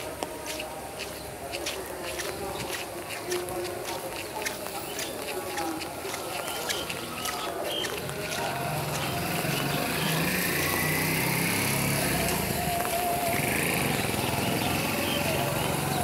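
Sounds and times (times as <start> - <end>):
tyres hissing on wet road: 0.0 - 16.0
auto-rickshaw engine driving past: 8.0 - 16.0.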